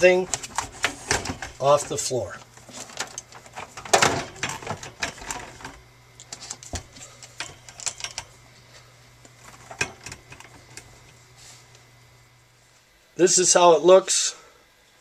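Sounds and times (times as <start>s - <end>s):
cables clicking and rattling: 0.2s - 8.4s.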